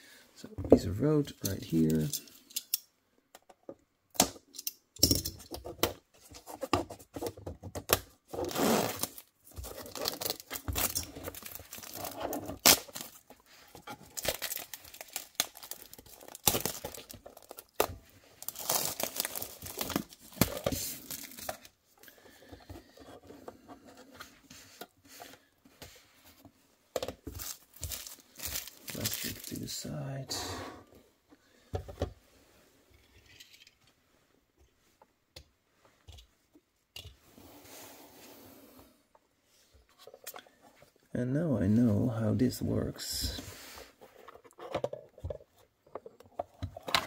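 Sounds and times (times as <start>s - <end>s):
plastic film peeling: 8.5s - 13.3s, 14.0s - 21.5s
plastic wrapping crinkling: 8.9s - 13.4s, 14.0s - 21.7s, 27.3s - 29.9s.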